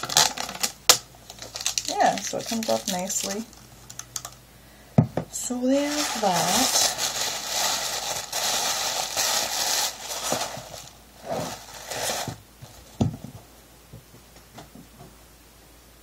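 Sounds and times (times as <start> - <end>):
tissue paper rustling: 1.3 - 3.5, 5.7 - 13.0.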